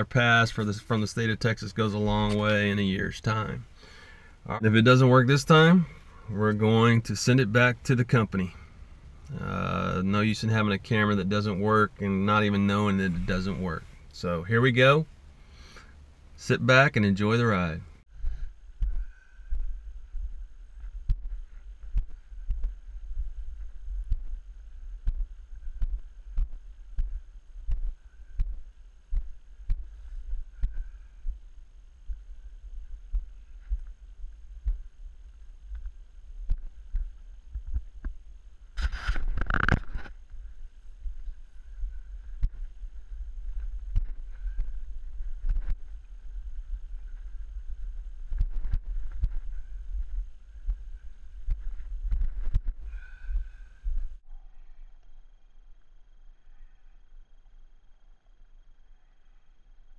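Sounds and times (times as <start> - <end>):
steady low rumble: 0.0 - 59.9
footsteps on dirt: 18.1 - 54.2
camera jostling: 38.8 - 40.2.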